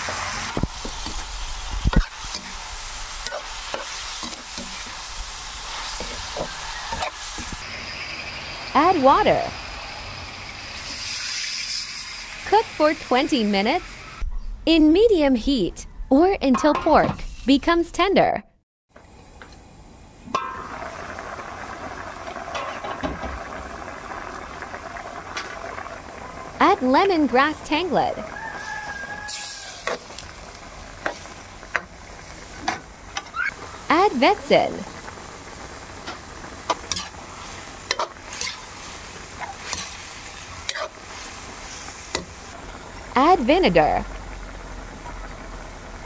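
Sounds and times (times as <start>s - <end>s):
meat sizzling: 0.0s - 14.2s, 20.3s - 46.0s
pot simmering: 0.0s - 14.2s, 18.9s - 46.0s.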